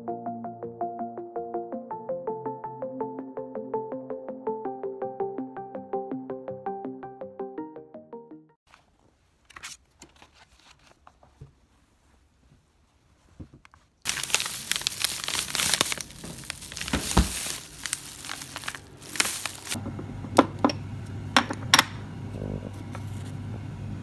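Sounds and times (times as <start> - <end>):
plastic bags crinkling: 14.0 - 19.8
steady low hum: 17.6 - 24.0.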